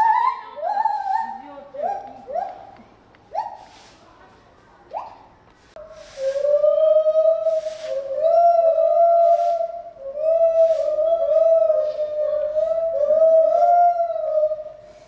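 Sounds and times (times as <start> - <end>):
soft hissing percussion: 5.5 - 13.8.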